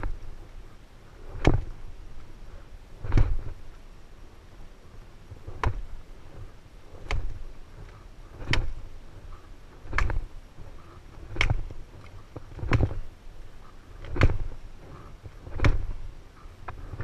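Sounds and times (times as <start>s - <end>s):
axe blows chopping wood: 1.4s - 1.7s, 8.4s - 8.8s, 9.9s - 10.2s, 14.0s - 14.5s, 15.5s - 15.9s.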